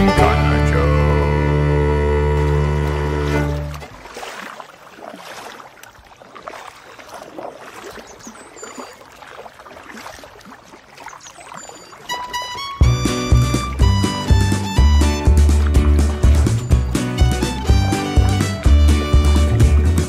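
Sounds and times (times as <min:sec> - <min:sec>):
background music: 0:00.0 - 0:03.7, 0:12.1 - 0:20.0
water splashing around canoe: 0:00.0 - 0:20.0
paddle strokes in water: 0:02.2 - 0:20.0.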